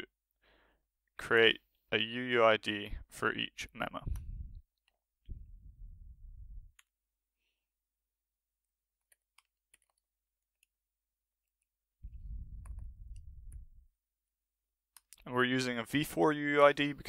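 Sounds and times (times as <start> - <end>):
keyboard typing: 9.0 - 10.8.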